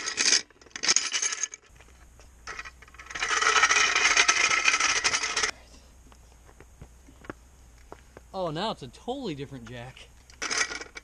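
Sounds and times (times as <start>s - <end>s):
floor jack rattling on wheels: 0.0s - 1.7s.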